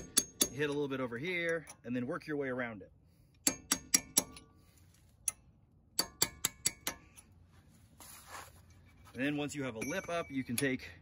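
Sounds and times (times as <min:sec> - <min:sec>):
hammer tapping metal: 0:00.0 - 0:00.9, 0:03.4 - 0:04.5, 0:06.0 - 0:07.2.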